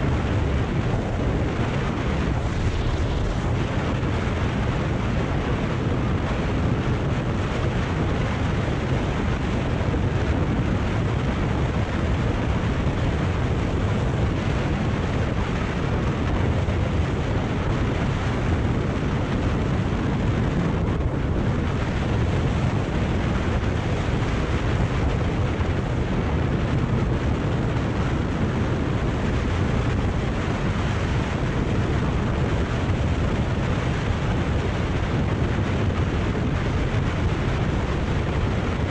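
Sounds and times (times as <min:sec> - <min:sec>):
wind rush on microphone: 0:00.0 - 0:38.9.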